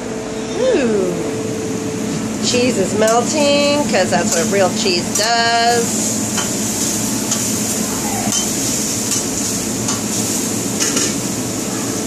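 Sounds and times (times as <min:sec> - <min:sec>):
food sizzling on a griddle: 0:02.5 - 0:12.0
metal spatula clacking on griddle: 0:08.3 - 0:10.1.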